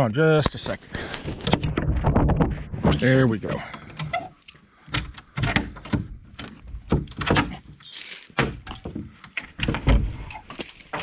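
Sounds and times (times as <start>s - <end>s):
lock and door clicks and knocks: 4.9s - 11.0s
keys jangling: 7.8s - 9.0s, 10.5s - 11.0s.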